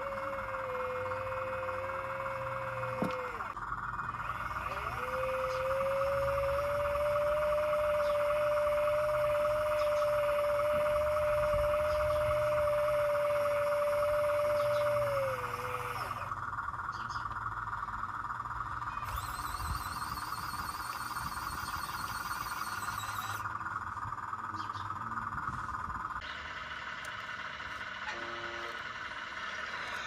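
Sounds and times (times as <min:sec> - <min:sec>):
electric motor whine: 0:00.0 - 0:16.5, 0:18.9 - 0:24.2
higher steady whine: 0:00.0 - 0:30.0
warbling high-pitched whine: 0:00.0 - 0:30.0.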